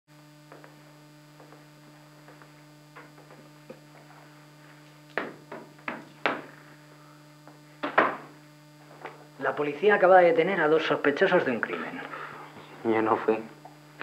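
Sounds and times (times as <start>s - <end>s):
low electrical hum: 0.1s - 14.0s
sharp knocks: 5.2s - 6.5s, 7.8s - 8.3s.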